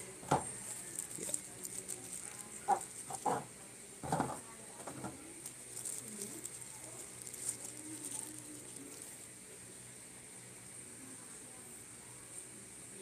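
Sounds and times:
plastic bag crinkling: 0:00.5 - 0:03.4, 0:04.8 - 0:09.3.

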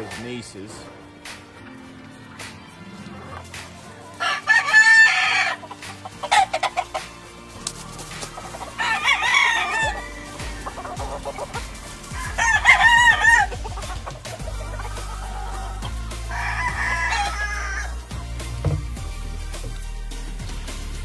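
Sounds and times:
roosters crowing: 0:02.9 - 0:19.8
rooster clucks: 0:04.2 - 0:07.2, 0:08.4 - 0:16.0.

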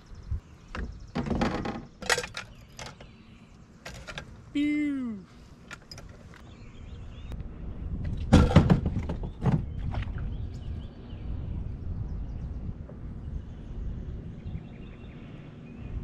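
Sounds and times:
sharp knocks and clatters: 0:00.7 - 0:03.1, 0:08.2 - 0:09.7
low rumble: 0:06.6 - 0:16.0.

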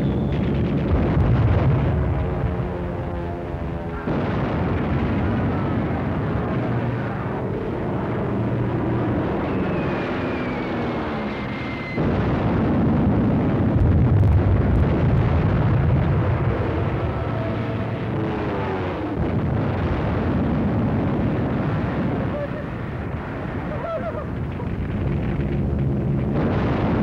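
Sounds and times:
explosions: 0:00.0 - 0:02.8, 0:03.5 - 0:27.0
loud blast: 0:00.0 - 0:02.8, 0:03.6 - 0:07.2, 0:08.8 - 0:23.7, 0:26.2 - 0:27.0
aircraft rumble: 0:00.0 - 0:27.0
falling bomb whistle: 0:09.4 - 0:12.0.

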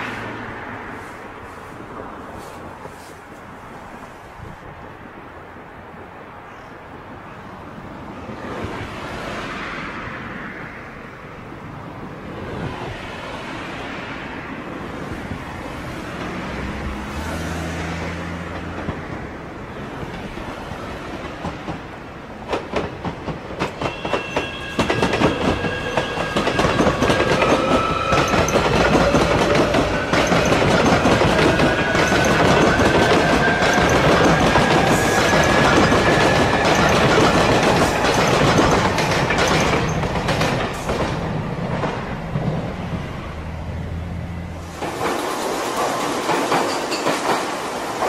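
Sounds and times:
train passing rush: 0:00.0 - 0:48.0
wheels clicking over rail joints: 0:21.1 - 0:42.8, 0:44.6 - 0:48.0.

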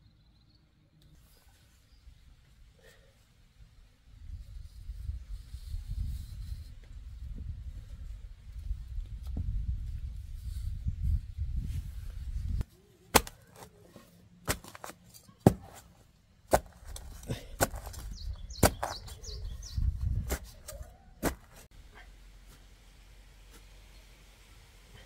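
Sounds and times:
sharp chopping knocks: 0:13.1 - 0:13.4, 0:14.5 - 0:15.8, 0:18.6 - 0:19.0.

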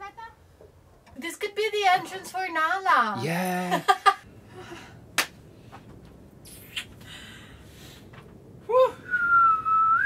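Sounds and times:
whistled tune: 0:09.1 - 0:10.0.

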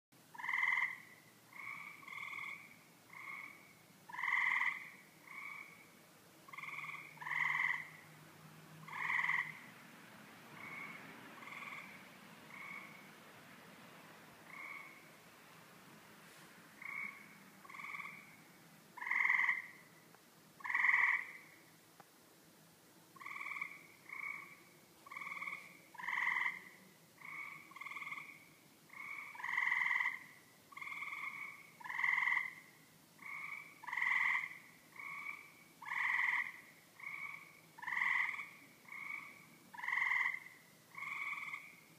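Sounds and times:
animal calls in a tree: 0:00.3 - 0:08.1, 0:08.8 - 0:09.7, 0:10.6 - 0:13.1, 0:16.8 - 0:18.4, 0:19.0 - 0:20.0, 0:20.6 - 0:21.6, 0:23.2 - 0:41.9.

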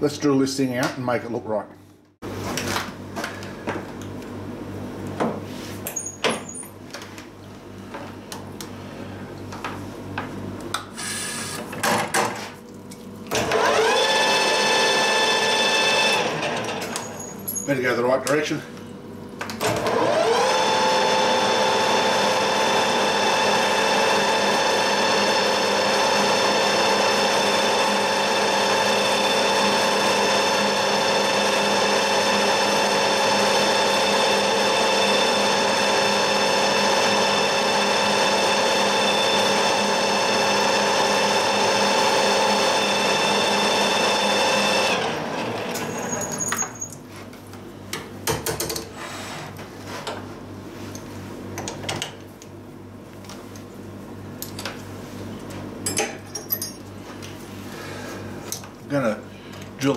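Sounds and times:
lathe motor whine: 0:13.3 - 0:16.9, 0:19.6 - 0:46.0.

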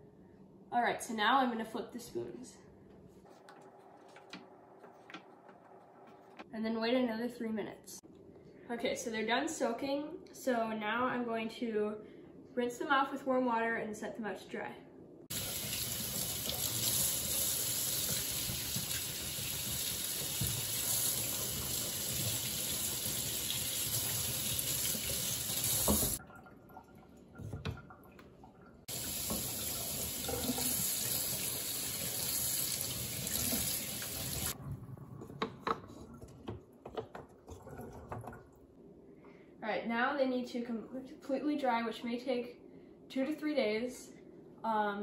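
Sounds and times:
kitchen tap running: 0:15.3 - 0:38.6.

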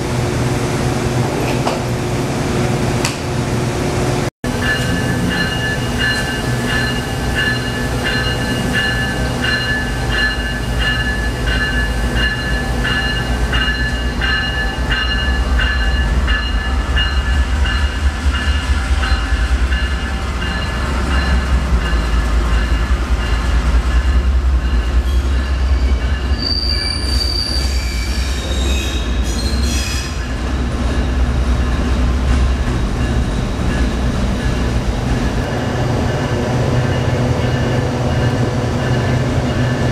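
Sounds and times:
diesel locomotive engine drone: 0:00.0 - 0:39.9
steel wheels squealing: 0:25.0 - 0:31.9.

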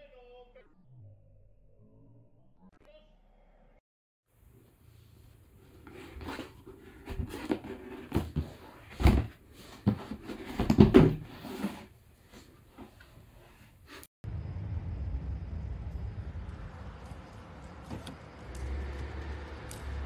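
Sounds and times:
cardboard box knocking and rustling: 0:06.0 - 0:11.8.

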